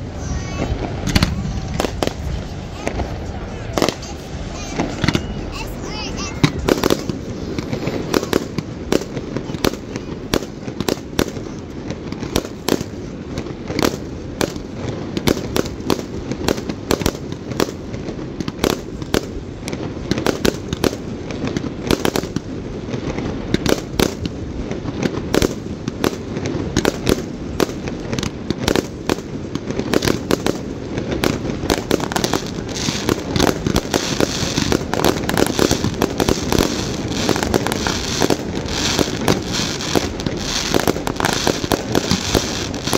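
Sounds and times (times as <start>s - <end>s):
fireworks bangs: 0.0s - 42.9s
fireworks crackling hiss: 0.0s - 42.9s.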